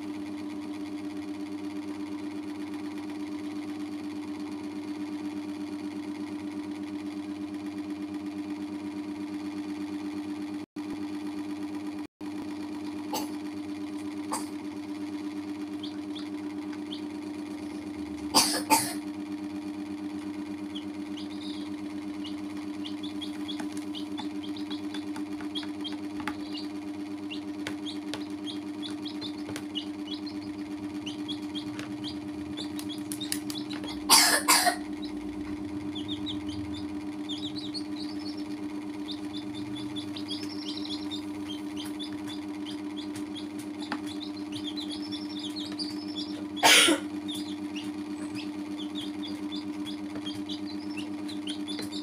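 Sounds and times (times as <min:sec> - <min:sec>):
low hum: 0:13.8 - 0:52.0
baby chicks peeping: 0:14.3 - 0:18.7, 0:20.0 - 0:52.0.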